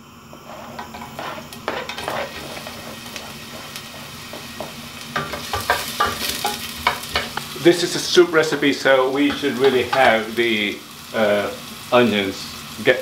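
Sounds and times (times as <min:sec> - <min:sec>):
onion sizzling in oil: 0:00.0 - 0:13.0
wooden spoon scraping a pot: 0:00.3 - 0:07.5.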